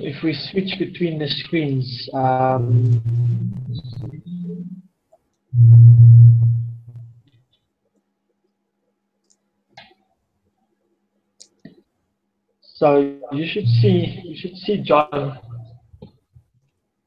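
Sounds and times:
man humming: 2.1s - 4.1s, 13.4s - 15.7s.

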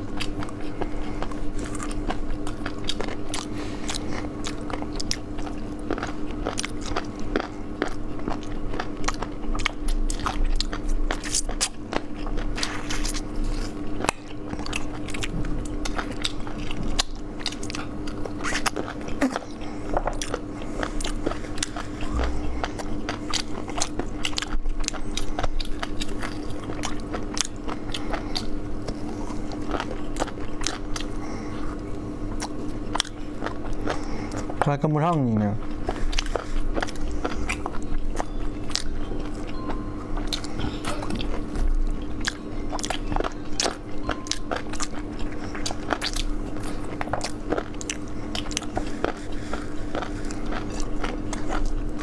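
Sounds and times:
crunchy chewing of fried chicken: 0.0s - 52.0s
faint steady hum: 0.0s - 52.0s.

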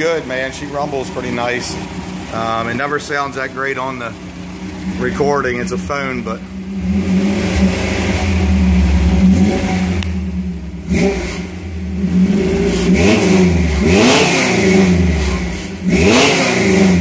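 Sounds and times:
truck engine idling and revving: 0.0s - 17.0s.

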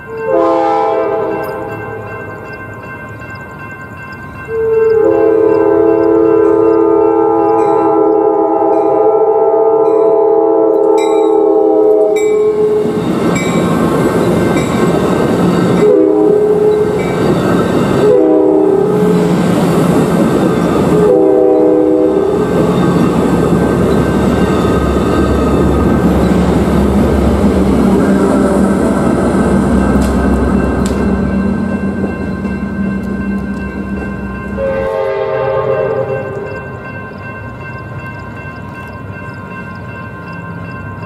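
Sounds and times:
train cars rumbling and clattering: 0.0s - 41.0s
train air horn blasts: 0.1s - 2.1s, 4.5s - 13.0s, 15.8s - 17.0s, 18.0s - 19.3s, 20.9s - 22.7s, 34.5s - 36.6s.

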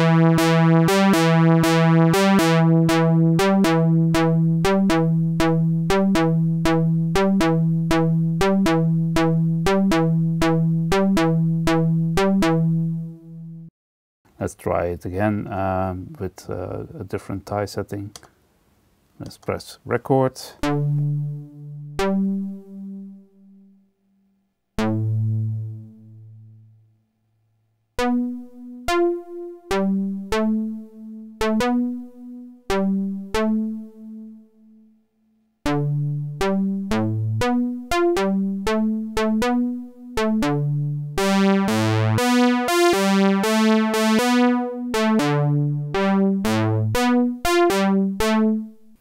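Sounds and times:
synthesizer sequence: 0.0s - 13.7s, 20.6s - 23.4s, 24.8s - 26.6s, 28.0s - 34.3s, 35.7s - 48.8s.

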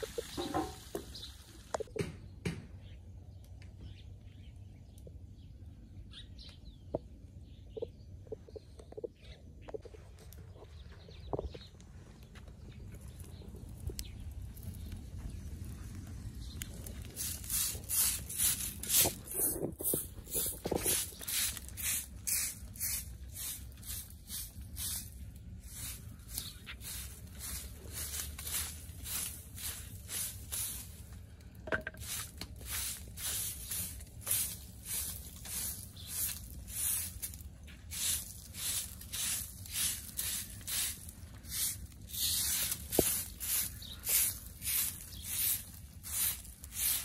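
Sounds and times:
broom sweeping sandy ground: 0.0s - 1.6s, 12.9s - 47.0s.

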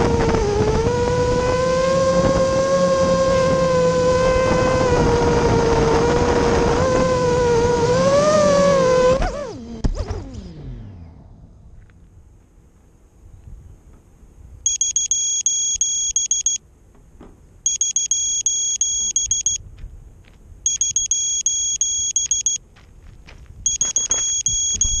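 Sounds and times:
rapid high buzzer beeps: 14.7s - 16.6s, 17.7s - 19.6s, 20.7s - 22.6s, 23.6s - 25.0s.

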